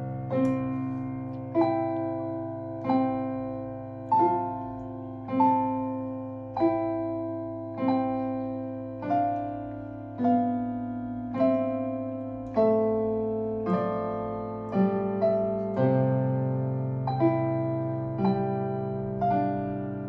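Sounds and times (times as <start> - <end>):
digital piano chords: 0.0 - 20.0.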